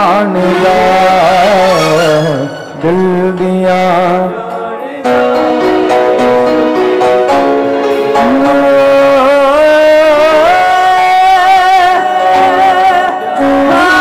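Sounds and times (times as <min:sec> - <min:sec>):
instrumental melody with band: 0:00.0 - 0:03.9, 0:05.1 - 0:11.0.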